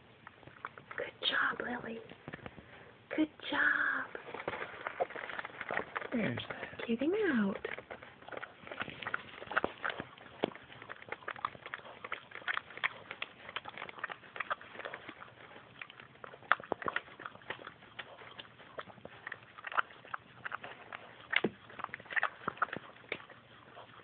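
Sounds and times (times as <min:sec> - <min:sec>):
dog licking wet clicks: 0:05.0 - 0:24.0.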